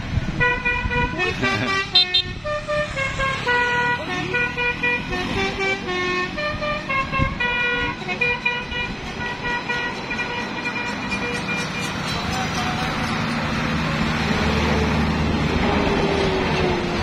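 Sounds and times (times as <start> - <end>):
vehicle engines running: 0.0 - 17.0
musical air horn melody: 0.4 - 11.8.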